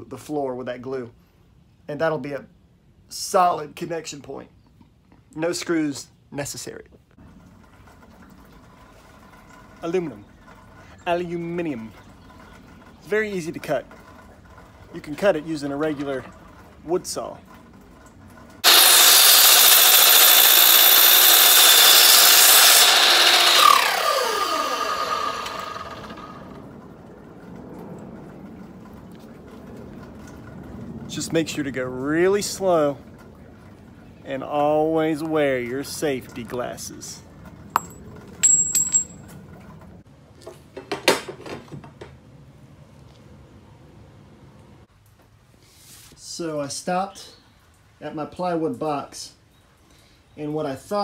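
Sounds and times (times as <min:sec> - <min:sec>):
miter saw cutting metal tubing: 0:18.6 - 0:26.6
saw blade spinning down whine: 0:18.6 - 0:27.0
light metal clinking: 0:37.7 - 0:39.3
short high metal ring: 0:37.7 - 0:39.3.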